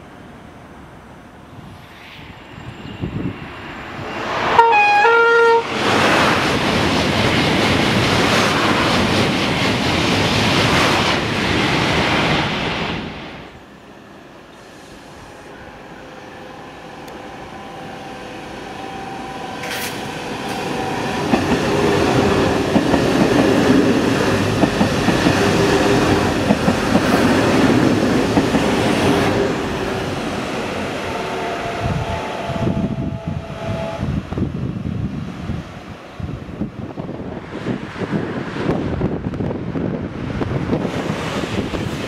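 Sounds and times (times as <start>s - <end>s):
train rumbling past: 0.0s - 42.0s
train wheels clicking on rail joints: 19.6s - 29.6s.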